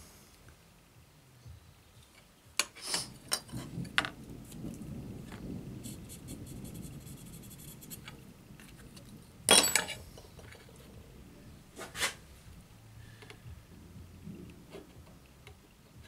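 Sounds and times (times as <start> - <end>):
caliper clattering on stone: 9.5 - 10.7.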